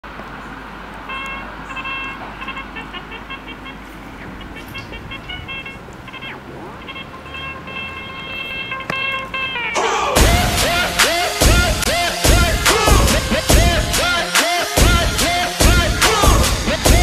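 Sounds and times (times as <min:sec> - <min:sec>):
short horn toots: 0:01.0 - 0:14.1
steady rushing background: 0:02.5 - 0:17.0.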